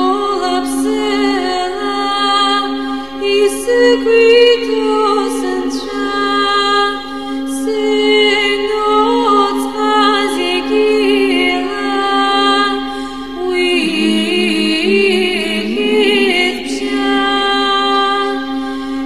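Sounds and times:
low drone: 9.8 - 19.0
sustained melody lines: 13.4 - 17.8.

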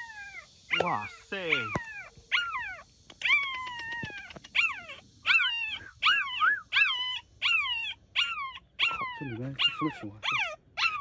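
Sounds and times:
puppy yelping: 0.0 - 11.0.

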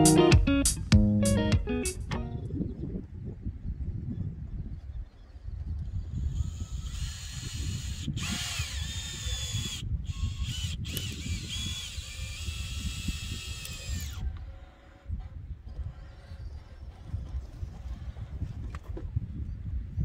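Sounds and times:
power drill motor whine: 5.8 - 16.9.

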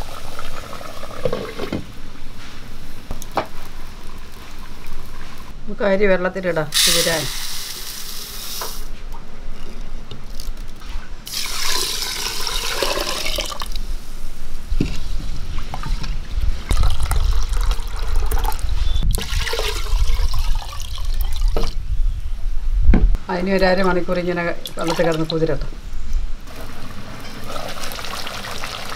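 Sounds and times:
rice pouring into a clay pot: 11.3 - 13.7
water pouring and splashing: 11.3 - 13.8, 15.5 - 21.8, 26.5 - 28.9.

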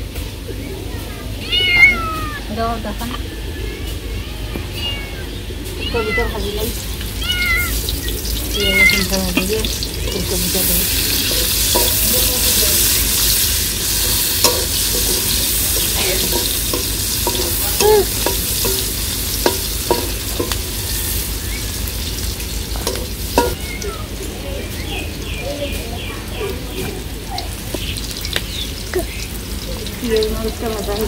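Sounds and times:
cat meowing: 1.2 - 2.5, 3.4 - 9.8, 22.9 - 24.3
vegetables sizzling in hot oil: 5.2 - 31.0
metal spatula scraping wok: 7.7 - 23.6.

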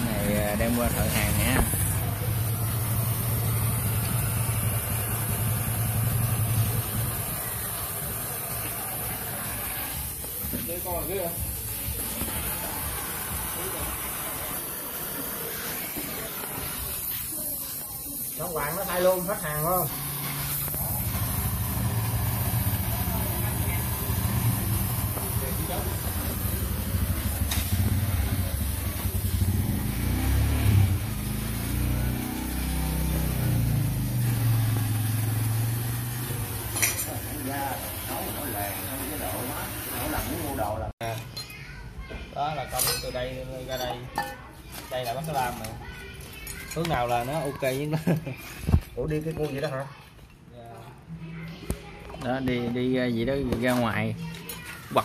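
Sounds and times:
engine running: 0.0 - 10.1, 19.0 - 40.2
torch flame hissing: 0.0 - 41.0.

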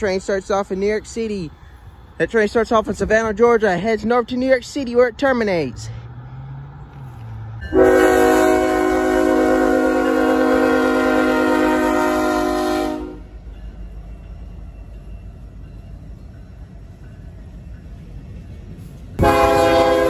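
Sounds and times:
passing train rumble: 0.0 - 20.0
locomotive air horn blast: 7.6 - 13.4, 19.2 - 20.0.

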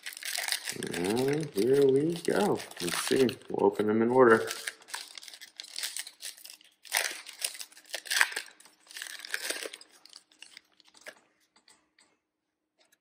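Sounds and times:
foil wrapper tearing and crinkling: 0.0 - 3.6, 4.2 - 11.2.

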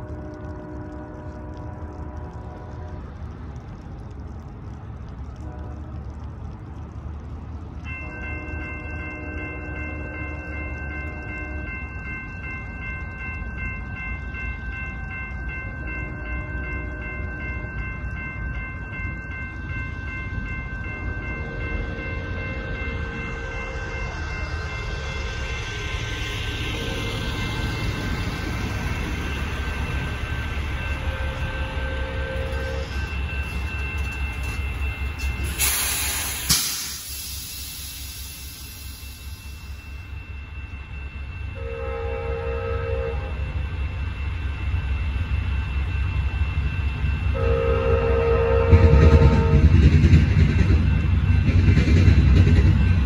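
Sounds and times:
train horn blasts: 0.0 - 3.2, 5.4 - 6.1, 7.9 - 11.8, 30.2 - 33.6, 41.6 - 43.5, 47.3 - 49.8
low rumble: 0.0 - 41.6
crossing warning bell ringing: 7.8 - 53.0
truck air brakes hissing: 35.4 - 39.6.

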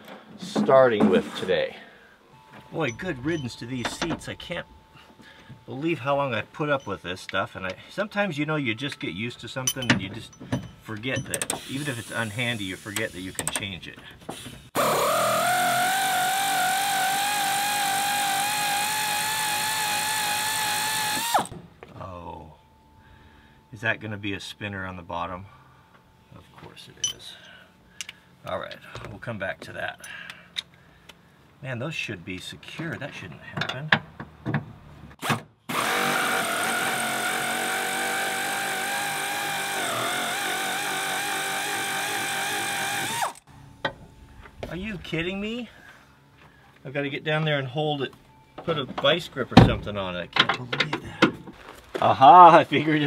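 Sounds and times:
power tool whining: 14.8 - 21.5, 35.7 - 43.5.

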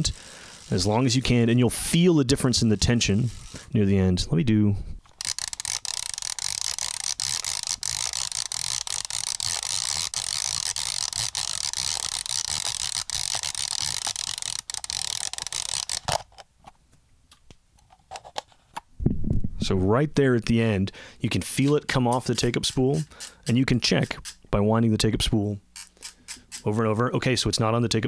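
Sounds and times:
camera rewind lever ratcheting: 0.0 - 1.4, 2.5 - 3.6, 5.1 - 16.4, 21.6 - 23.5, 25.8 - 26.7.

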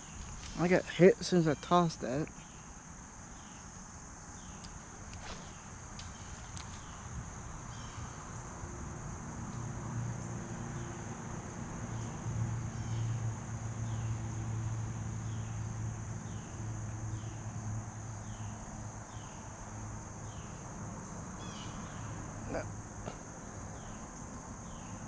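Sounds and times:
high insect drone: 0.0 - 25.0
short falling chirps: 5.2 - 6.4.

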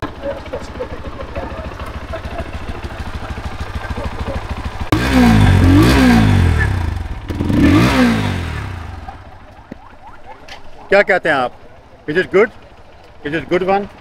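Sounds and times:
motorcycle engine idling and revving: 0.0 - 14.0.

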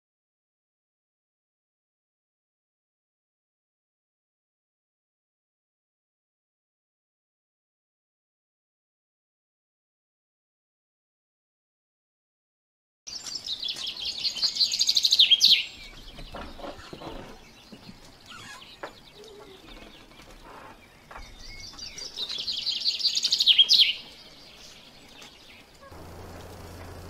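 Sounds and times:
soft bird chirps: 13.1 - 27.0
songbird singing: 13.1 - 27.0.

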